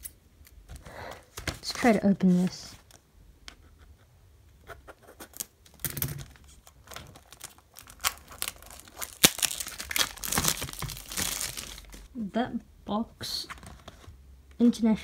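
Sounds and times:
plastic wrap crinkling and tearing: 6.2 - 12.1
plastic wrap snapping: 6.7 - 12.1.

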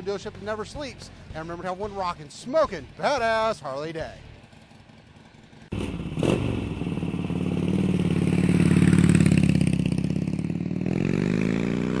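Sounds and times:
motorcycle engine revving: 4.4 - 12.0.

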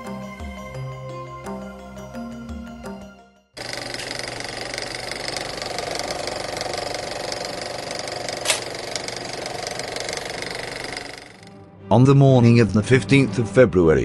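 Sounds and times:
motor rattling: 3.6 - 11.5.

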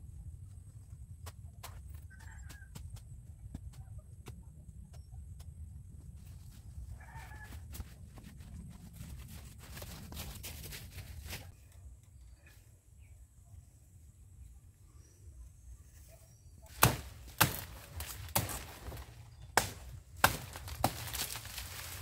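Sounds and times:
low steady rumble: 0.0 - 10.1
footsteps rustling through vines: 6.4 - 11.5, 16.7 - 22.0.

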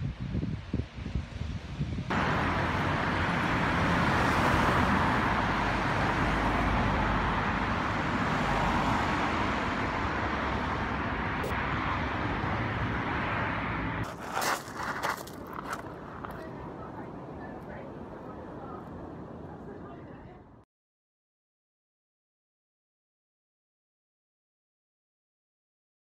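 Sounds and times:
road traffic rushing: 1.7 - 20.6.

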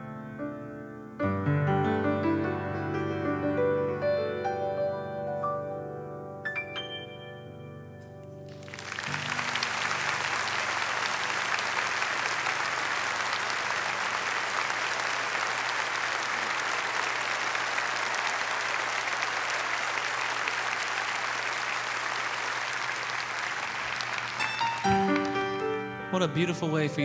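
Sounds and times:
large audience applauding: 8.5 - 25.9.

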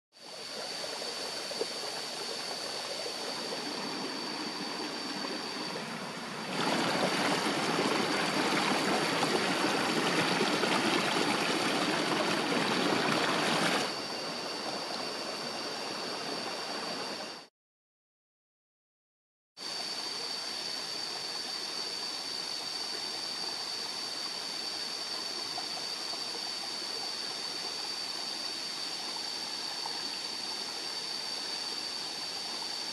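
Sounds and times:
river water rushing and splashing: 2.0 - 16.1.

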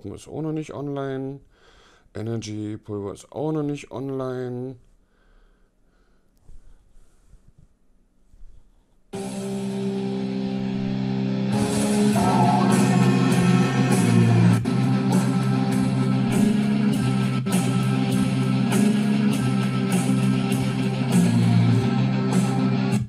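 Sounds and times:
guitar rock music: 9.2 - 23.0.

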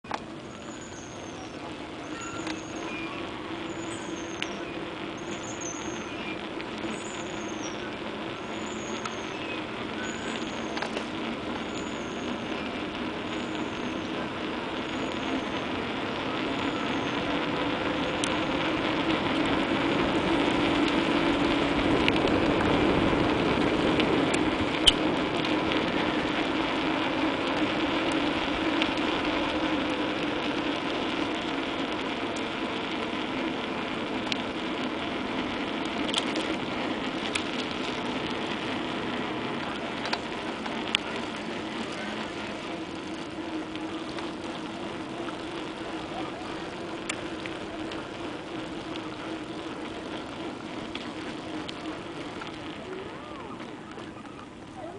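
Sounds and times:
bicycle tyre and wind rush: 0.0 - 54.9
freewheel ticking: 0.0 - 54.9
sharp clicks from bicycle: 0.0 - 54.9.

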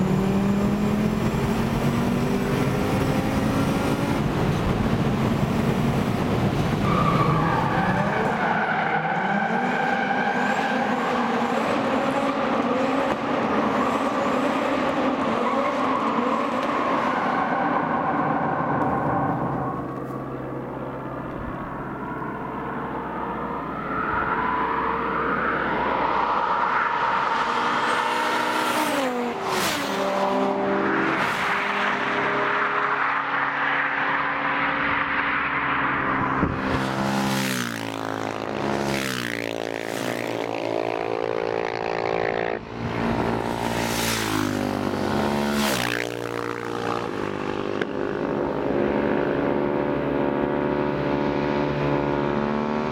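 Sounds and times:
cars and motorcycles revving past: 18.7 - 52.9.

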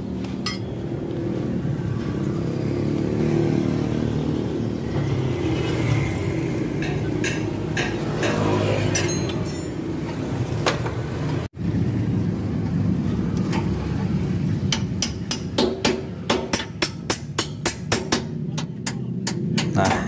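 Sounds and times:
wrench clinking on bolts: 0.4 - 0.7, 6.8 - 10.2.

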